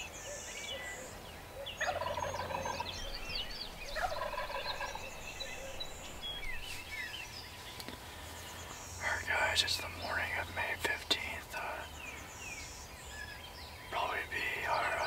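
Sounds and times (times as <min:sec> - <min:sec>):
songbirds chirping: 0:00.0 - 0:15.0
turkey gobbling: 0:01.8 - 0:03.1, 0:03.9 - 0:06.0.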